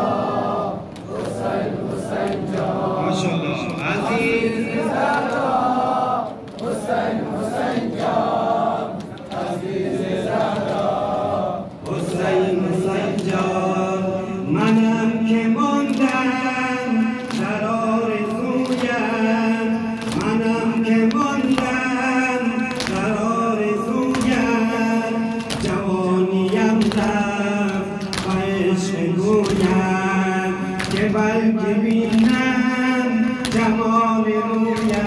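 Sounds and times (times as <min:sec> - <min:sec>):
men chanting together: 0:00.0 - 0:35.0
hands slapping chests: 0:24.1 - 0:24.5, 0:29.3 - 0:29.8.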